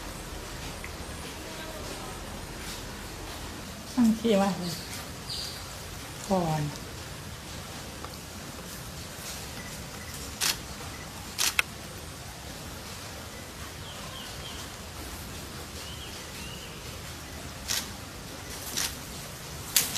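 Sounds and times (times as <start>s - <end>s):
outdoor background noise: 0.0s - 19.9s
short sharp noise bursts: 9.6s - 11.7s.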